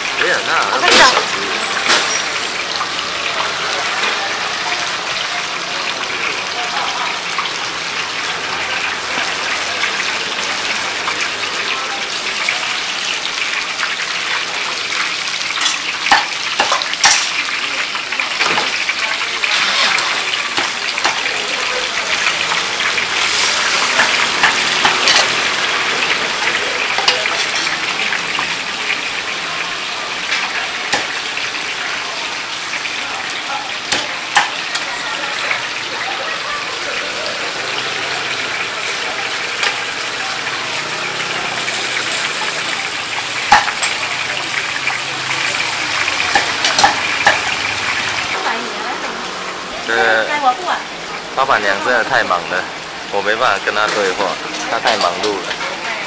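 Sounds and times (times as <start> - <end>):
oil sizzling in a wok: 0.0 - 56.0
metal utensils clinking: 0.7 - 3.2, 15.5 - 17.5, 18.3 - 21.4, 22.0 - 28.6, 40.8 - 48.2, 53.8 - 55.8.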